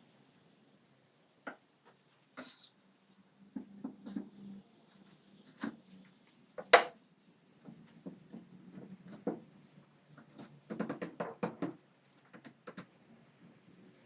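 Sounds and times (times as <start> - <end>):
wood-on-wood knock: 6.6 - 6.9.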